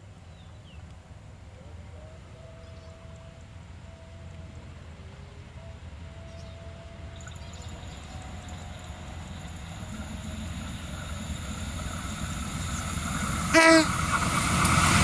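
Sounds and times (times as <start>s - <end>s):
diesel locomotive rumble: 6.8s - 15.0s
train horn blast: 13.4s - 14.0s.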